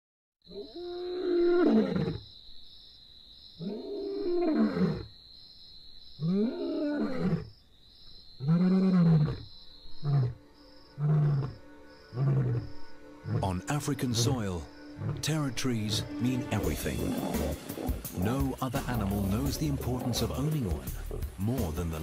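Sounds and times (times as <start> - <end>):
lion roaring and grunting: 15.0 - 15.3, 16.6 - 21.4.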